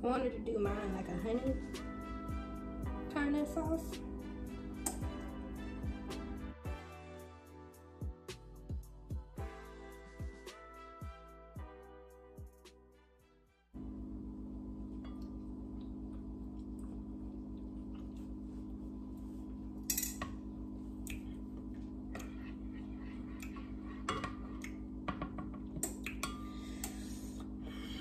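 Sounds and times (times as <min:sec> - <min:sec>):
steady low oven hum: 0:00.0 - 0:06.8, 0:13.8 - 0:28.0.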